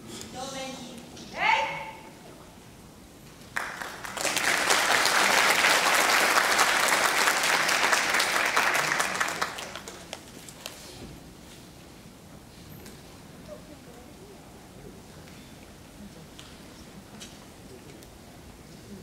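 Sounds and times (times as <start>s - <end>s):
audience applauding: 3.5s - 10.3s.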